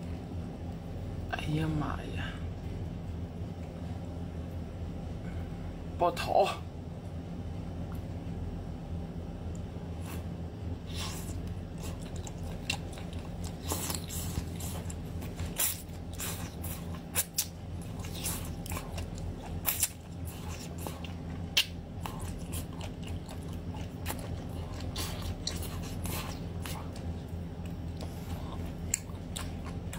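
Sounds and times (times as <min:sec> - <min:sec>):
steady low hum: 0:00.0 - 0:29.9
wet eating and lip smacks: 0:09.4 - 0:29.9.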